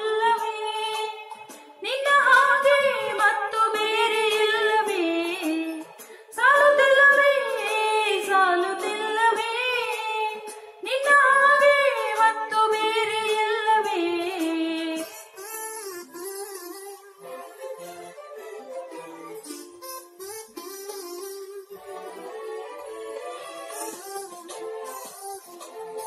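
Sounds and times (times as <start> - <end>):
woman singing unaccompanied: 0.0 - 15.2.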